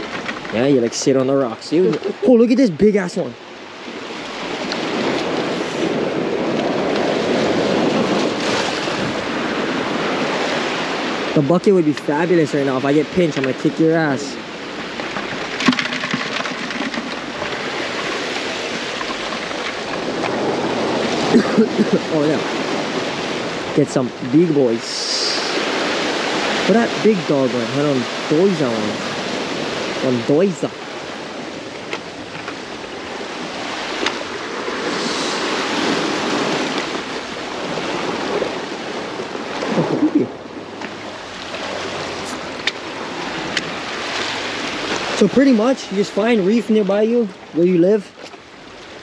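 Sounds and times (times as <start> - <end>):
surf washing over rocks: 0.0 - 49.0
sharp clicks and knocks: 15.1 - 17.3.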